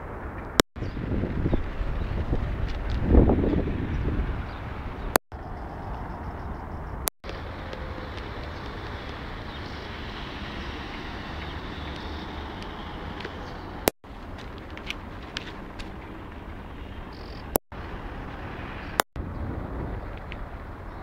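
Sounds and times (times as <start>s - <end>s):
road traffic: 0.0s - 21.0s.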